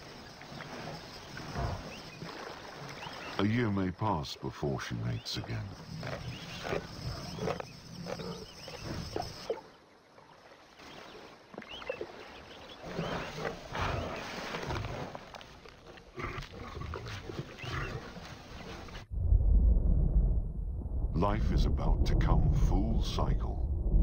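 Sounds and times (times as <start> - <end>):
lions growling: 5.4 - 9.6, 12.7 - 19.0.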